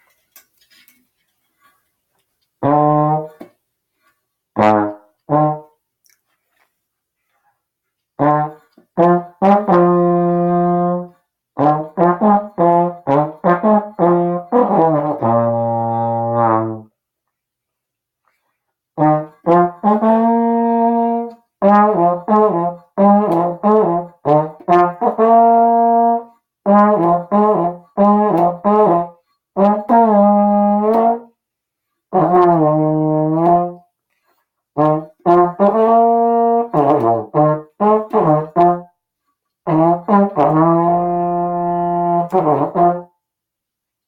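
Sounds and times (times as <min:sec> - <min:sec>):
slide trombone playing: 0:02.6 - 0:05.8, 0:08.2 - 0:17.0, 0:19.0 - 0:31.4, 0:32.1 - 0:33.9, 0:34.7 - 0:39.0, 0:39.6 - 0:43.2.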